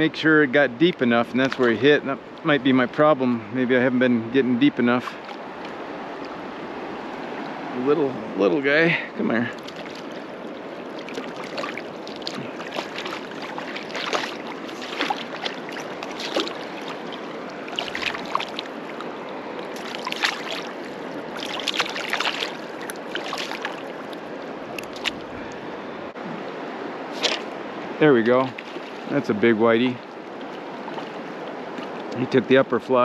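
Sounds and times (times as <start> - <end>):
fish splashing: 9.5 - 25.7, 26.4 - 29.3, 30.0 - 32.2
river flowing over rocks: 9.6 - 27.9.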